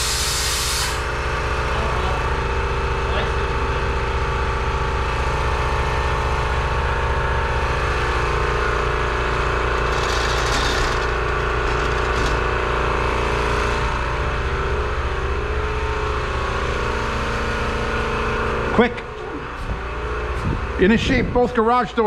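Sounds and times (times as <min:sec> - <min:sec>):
compressed air hissing from hose: 0:00.0 - 0:01.1
air compressor running: 0:00.0 - 0:21.8.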